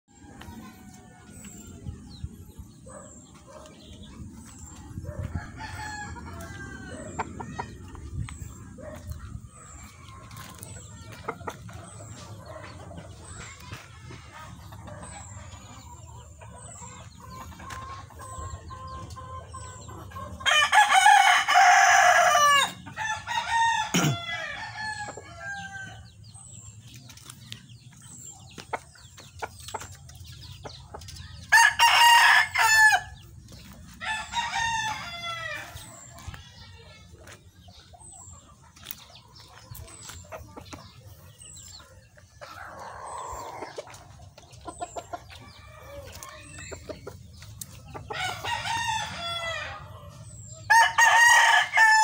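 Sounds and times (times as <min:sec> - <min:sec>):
roosters crowing: 0:02.9 - 0:11.0, 0:18.1 - 0:26.2, 0:31.2 - 0:36.1, 0:42.4 - 0:44.1, 0:44.7 - 0:47.1, 0:47.8 - 0:52.0.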